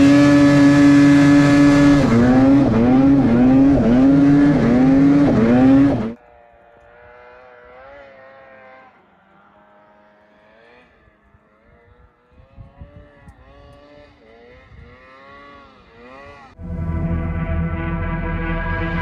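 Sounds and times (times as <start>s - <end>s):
distant snowmobile engine revving: 0.0s - 19.0s
loud music: 16.6s - 19.0s.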